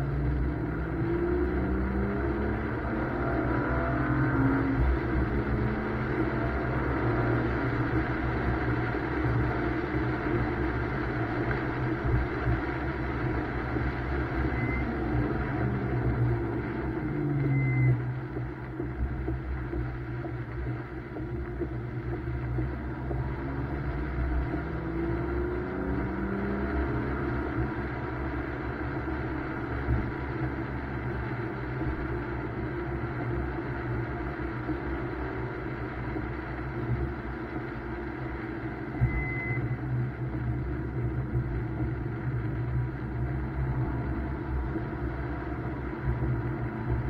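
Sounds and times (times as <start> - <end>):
car engine droning: 0.0 - 47.0
road noise: 0.0 - 47.0
short high beep: 14.5 - 14.9, 39.0 - 39.7.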